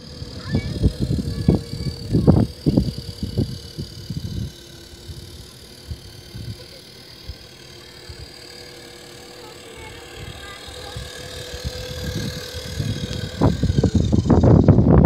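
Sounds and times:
low rumble on microphone: 0.0 - 6.7, 9.8 - 15.0
toy truck motor whine: 0.0 - 15.0.

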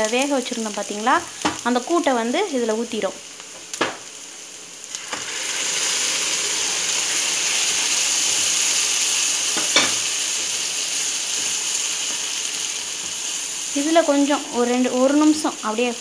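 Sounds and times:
onions sizzling in a pan: 0.0 - 16.0
spoon knocking on pan: 9.6 - 10.0.

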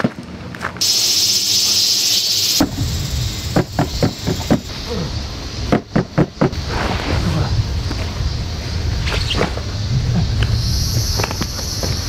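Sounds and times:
cicadas buzzing: 0.8 - 12.0
low rumble: 2.6 - 12.0.

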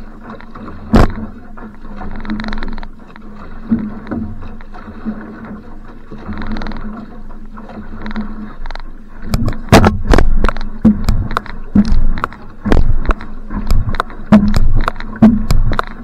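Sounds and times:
paddle splashing in water: 0.0 - 16.0
water rushing along hull: 0.0 - 16.0
paddle knocks: 0.3 - 16.0.

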